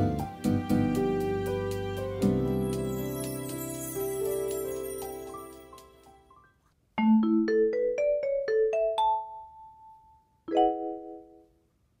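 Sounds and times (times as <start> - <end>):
mallet percussion jingle: 2.5 - 6.3.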